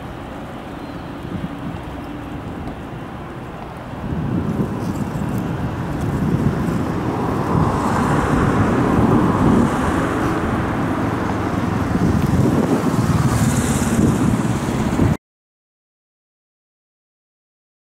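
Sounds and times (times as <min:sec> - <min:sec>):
jet taking off: 0:06.1 - 0:15.2.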